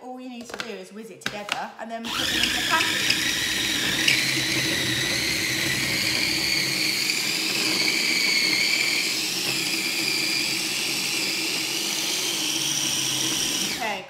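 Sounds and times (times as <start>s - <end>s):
electric chopper motor whining: 2.1s - 14.0s.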